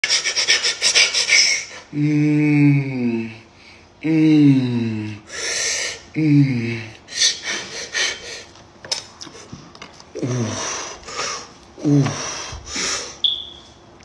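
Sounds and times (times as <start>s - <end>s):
man's wordless vocal sounds: 1.9s - 5.3s, 6.1s - 7.0s.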